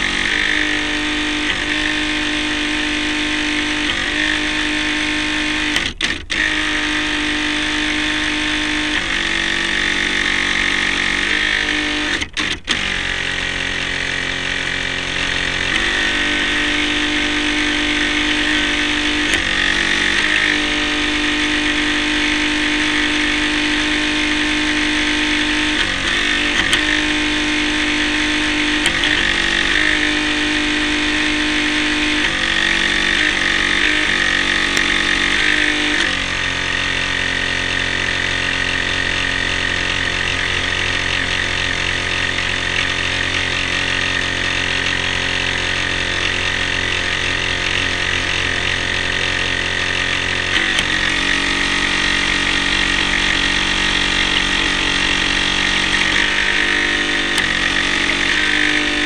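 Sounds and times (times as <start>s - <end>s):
model boat motor whining: 0.0s - 59.0s.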